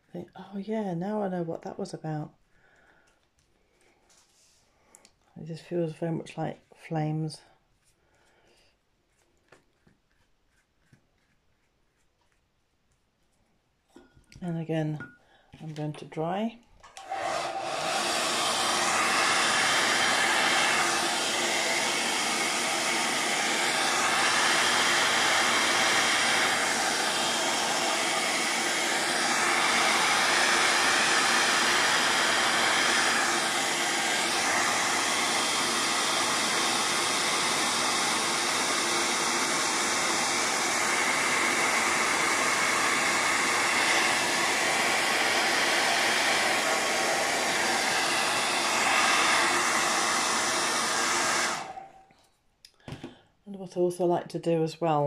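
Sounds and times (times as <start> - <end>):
hair dryer blowing: 16.8 - 52.1.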